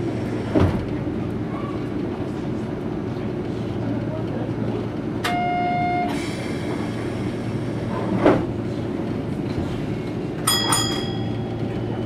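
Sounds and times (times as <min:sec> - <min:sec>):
tram equipment humming: 0:00.0 - 0:12.0
short ringing chime: 0:10.5 - 0:11.6.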